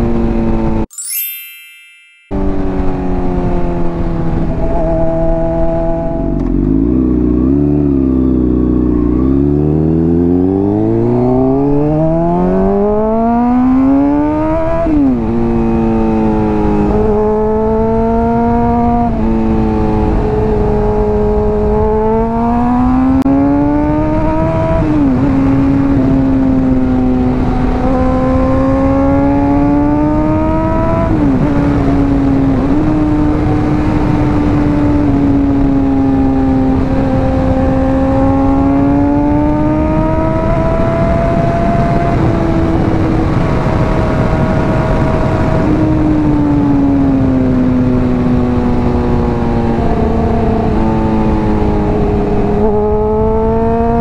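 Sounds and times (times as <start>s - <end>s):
motorcycle engine revving: 2.4s - 54.0s
wind rush in helmet: 18.8s - 53.3s.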